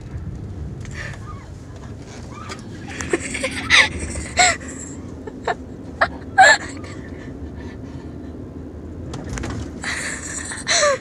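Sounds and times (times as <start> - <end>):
car driving rumble: 0.0 - 11.0
people giggling: 2.8 - 7.1.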